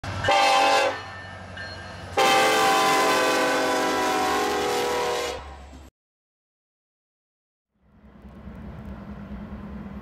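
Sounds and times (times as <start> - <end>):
low rumble of train: 0.0 - 5.9, 7.7 - 10.0
locomotive air horn blasts: 0.3 - 1.1, 2.2 - 5.7.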